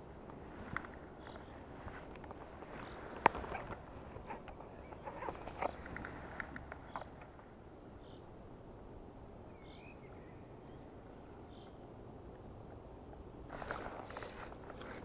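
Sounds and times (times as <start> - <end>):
faint bird chirps: 1.2 - 1.7, 9.5 - 11.8
scratchy spinning reel noise: 13.5 - 15.0.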